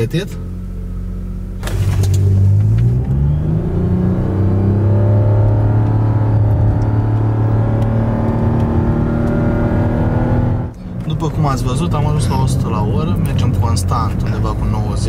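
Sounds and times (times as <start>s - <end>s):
car engine revving under acceleration: 0.4s - 15.0s.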